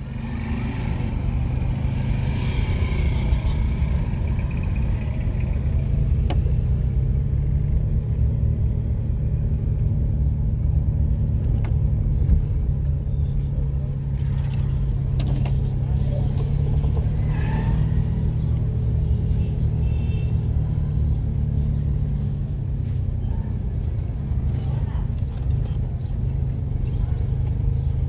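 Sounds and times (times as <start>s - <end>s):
traffic engine rumble: 0.0s - 28.0s.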